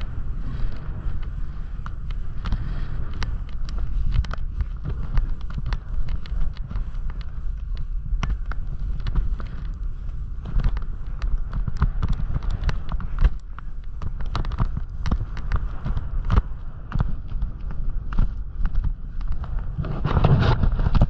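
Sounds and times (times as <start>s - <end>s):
snowboard chattering on snow: 0.0s - 21.0s
wind rumbling on microphone: 0.0s - 21.0s.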